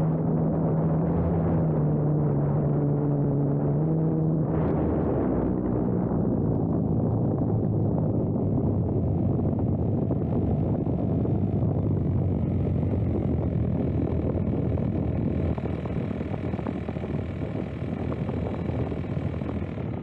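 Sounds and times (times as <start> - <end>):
faint steady whine: 0.0 - 20.0
wind rumble: 0.0 - 20.0
model plane motor and propeller: 6.2 - 20.0.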